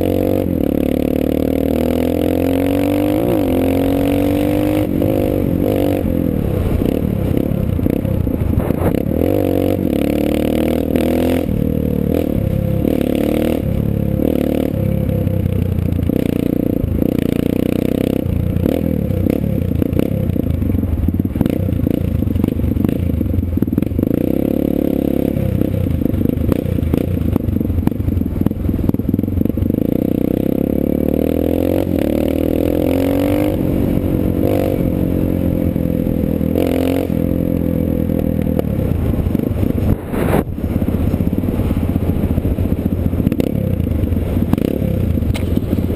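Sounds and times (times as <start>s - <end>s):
dirt bike engine revving: 0.0s - 15.2s, 28.8s - 41.8s.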